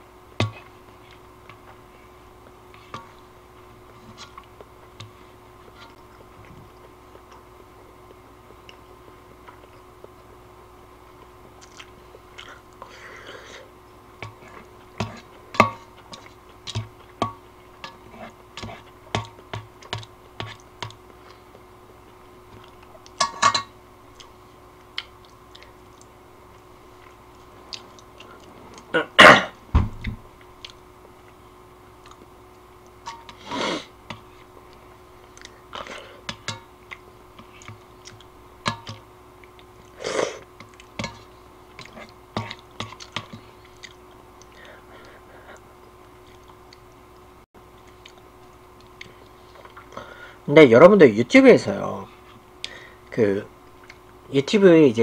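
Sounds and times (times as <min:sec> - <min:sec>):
chewing: 0:11.2 - 0:12.9, 0:24.1 - 0:28.9, 0:30.4 - 0:31.4, 0:32.0 - 0:33.0, 0:34.6 - 0:36.0, 0:39.4 - 0:40.0, 0:40.6 - 0:41.0, 0:41.7 - 0:47.0, 0:47.8 - 0:50.0.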